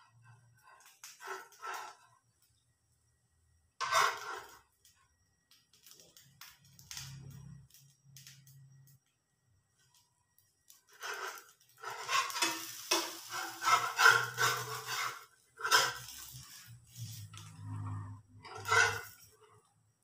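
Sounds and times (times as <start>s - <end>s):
metal spatula scraping frying pan: 0.0s - 2.1s, 3.8s - 4.7s, 10.9s - 19.7s.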